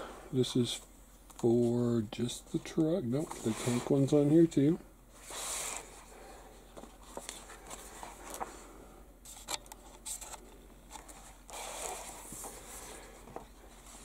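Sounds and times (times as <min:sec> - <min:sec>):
paper pages rustling: 0:06.8 - 0:08.6, 0:09.3 - 0:14.0.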